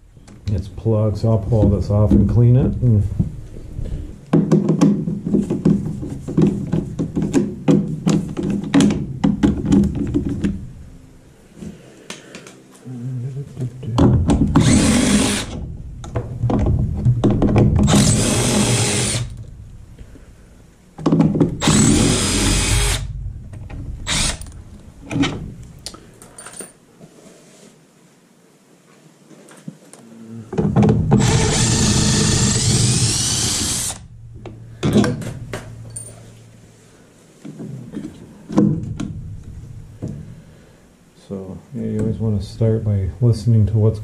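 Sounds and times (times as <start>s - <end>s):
cordless power driver running: 14.6s - 15.5s, 17.9s - 19.3s, 21.6s - 23.1s, 24.1s - 24.4s, 31.2s - 34.0s.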